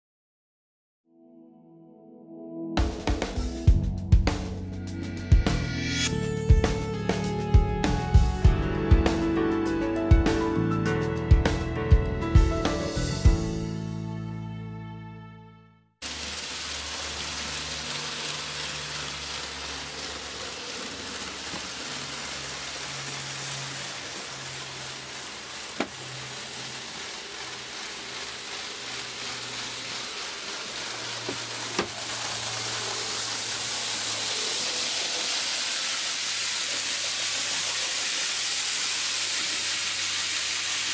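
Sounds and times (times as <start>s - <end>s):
model train wheels on rail: 16.0s - 40.9s
wavering motor hum: 16.1s - 38.4s.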